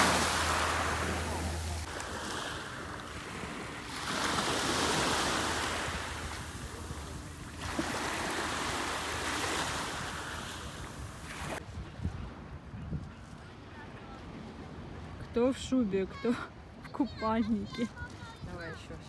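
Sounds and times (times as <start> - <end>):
surf washing onto shore: 0.0 - 11.6.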